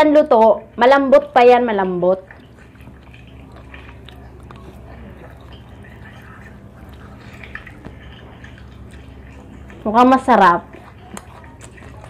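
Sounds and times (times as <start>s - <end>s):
low steady hum: 0.0s - 12.0s
crab shell cracking and eating: 10.7s - 12.0s.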